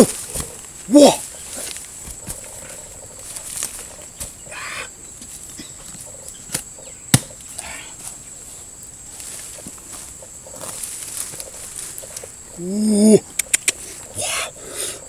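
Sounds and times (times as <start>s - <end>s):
bird calling: 0.0s - 8.0s
high insect whine: 0.0s - 15.0s.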